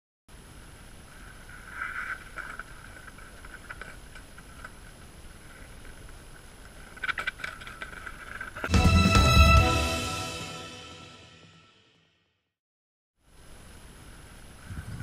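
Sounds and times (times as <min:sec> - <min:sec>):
faint open air hiss: 0:00.3 - 0:07.7, 0:13.2 - 0:15.0.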